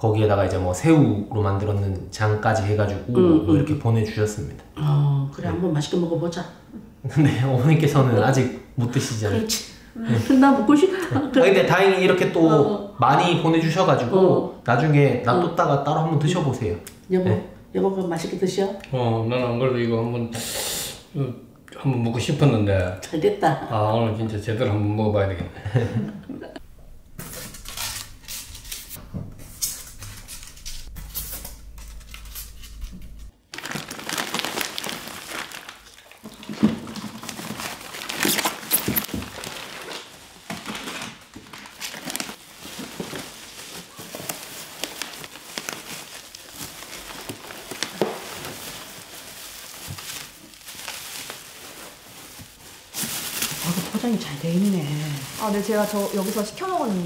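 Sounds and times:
plastic bags crinkling: 31.8 - 57.0.

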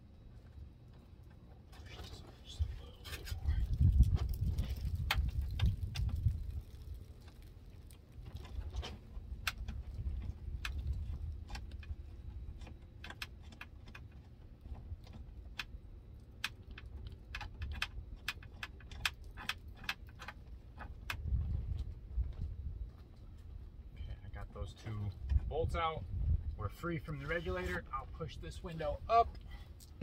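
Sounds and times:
low background rumble: 0.0 - 30.0
light metallic clicks and rattles: 0.4 - 25.5.

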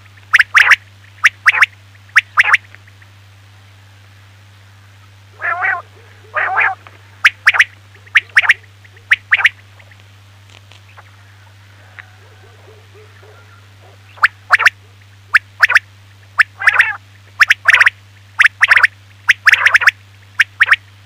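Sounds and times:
low electrical hum: 0.0 - 21.0
quail calling: 0.3 - 3.1, 5.3 - 10.0, 10.9 - 20.8.

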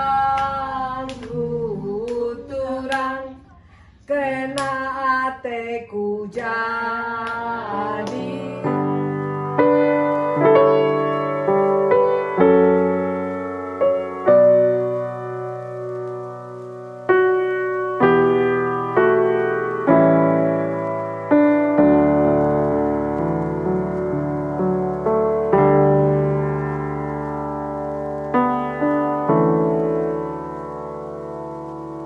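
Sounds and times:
slow piano chords: 0.0 - 3.5, 6.3 - 32.0
women singing together: 4.1 - 8.8.

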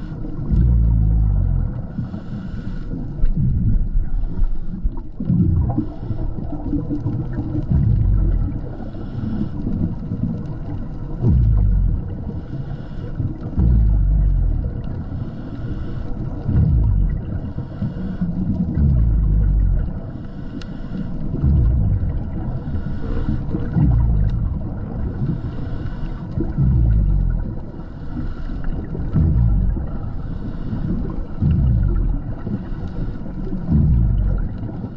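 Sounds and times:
diver breathing through regulator: 0.0 - 34.9
exhaled bubbles rumbling: 0.0 - 34.9.

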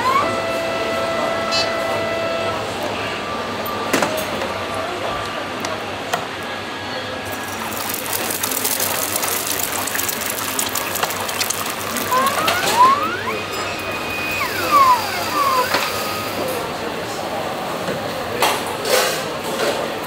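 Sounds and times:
eggs sizzling in hot oil: 7.3 - 13.2
machine motor whining: 7.3 - 17.0.

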